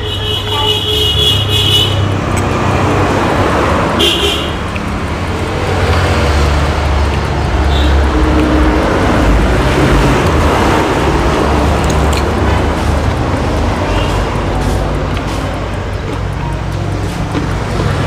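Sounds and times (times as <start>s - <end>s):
vehicle engine rumbling: 0.0s - 18.0s.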